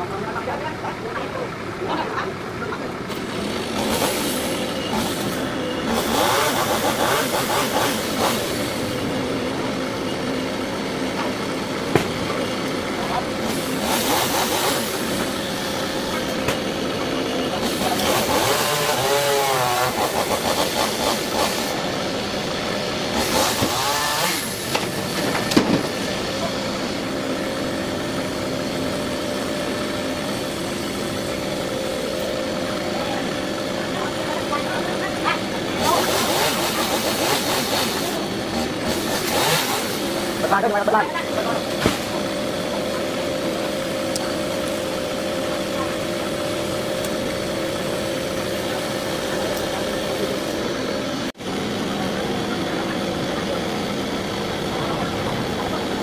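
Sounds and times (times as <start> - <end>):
engine running: 0.0 - 56.0
sharp knock: 11.9 - 12.1.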